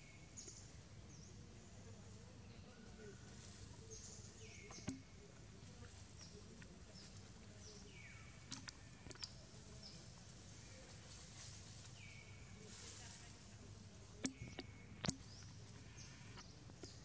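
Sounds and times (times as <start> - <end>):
sharp clicks: 14.2 - 15.5.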